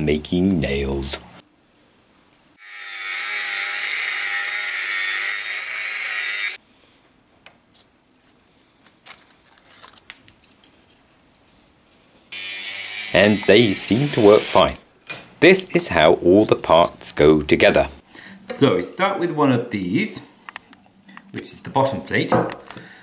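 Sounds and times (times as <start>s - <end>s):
angle grinder grinding steel: 2.6s - 6.6s
metal clinks: 7.7s - 11.8s.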